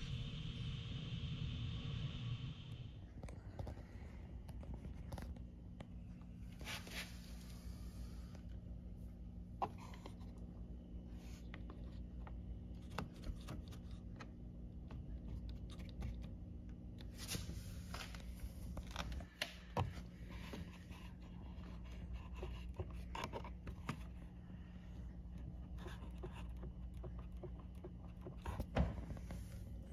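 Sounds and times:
steady low hum: 0.0 - 29.9
light scrapes and rubs: 6.6 - 7.7.

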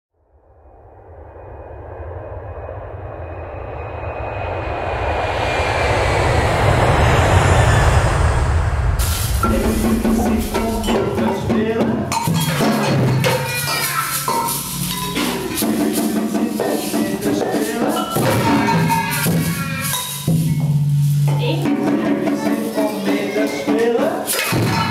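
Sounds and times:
samba percussion rattling: 9.4 - 24.9
children's voices calling: 12.5 - 20.4, 21.3 - 24.9.

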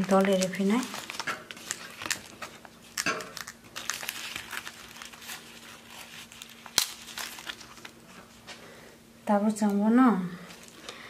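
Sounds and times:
banana leaf crinkling: 0.0 - 8.4.

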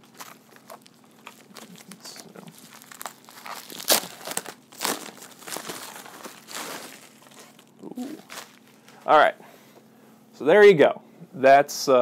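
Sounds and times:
padded envelope crinkling: 0.0 - 9.1.

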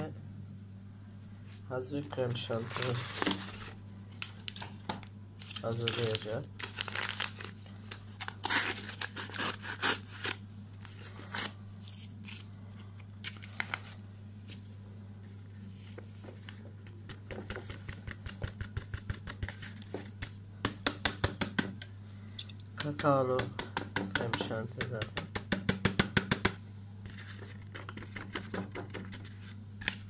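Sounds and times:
steady low hum: 0.0 - 30.0
powder sachet crinkling: 5.4 - 12.5.

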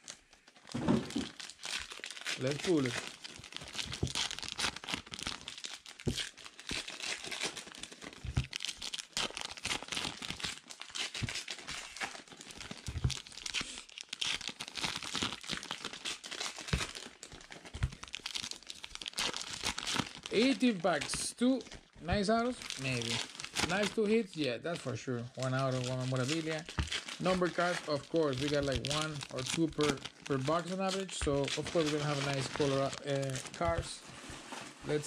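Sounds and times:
card wrappers tearing and crinkling: 0.0 - 35.0
cards knocking on felt table: 12.9 - 13.2.

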